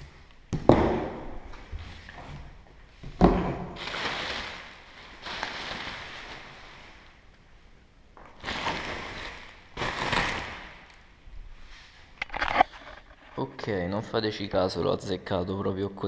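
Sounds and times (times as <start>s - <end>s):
bubble wrap rustling: 3.6s - 7.4s, 8.2s - 12.1s.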